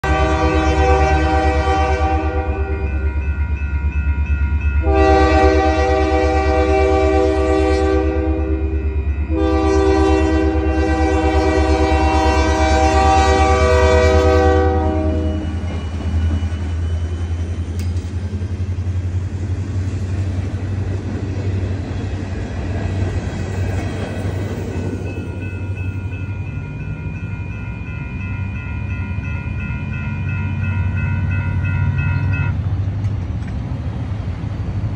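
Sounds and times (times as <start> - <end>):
locomotive air horn blasts: 0.0 - 3.0, 4.8 - 15.6
locomotive engine rumble: 0.0 - 34.9.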